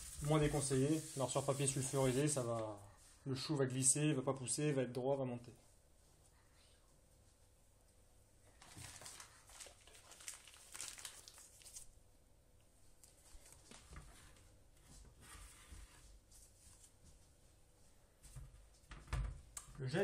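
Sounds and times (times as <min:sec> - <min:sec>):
plastic piping bag crinkling: 0:08.5 - 0:12.0.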